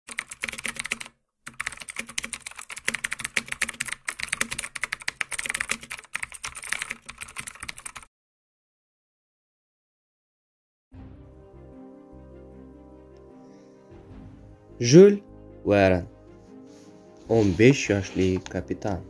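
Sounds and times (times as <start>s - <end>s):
computer keyboard typing: 0.1s - 8.1s.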